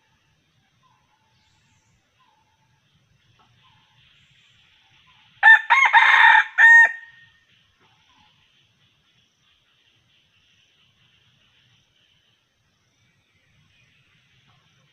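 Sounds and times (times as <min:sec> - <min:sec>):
rooster crowing: 0:05.4 - 0:07.2.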